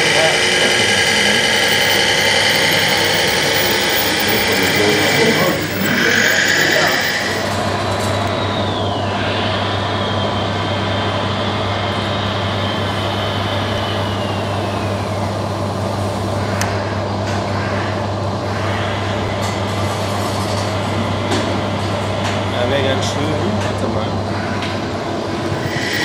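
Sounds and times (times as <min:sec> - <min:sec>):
high whine sliding down: 0:00.0 - 0:16.9, 0:24.6 - 0:26.0
model truck hum and drone: 0:00.0 - 0:26.0.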